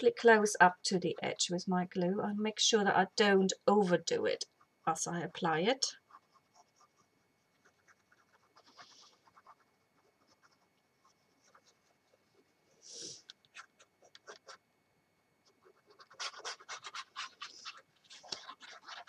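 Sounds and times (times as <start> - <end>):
card rustling and ticking: 13.2 - 14.6, 15.6 - 19.0.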